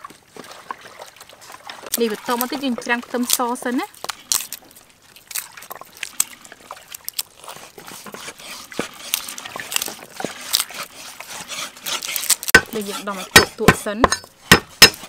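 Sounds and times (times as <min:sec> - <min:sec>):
garlic skins crackling: 0:01.8 - 0:15.0.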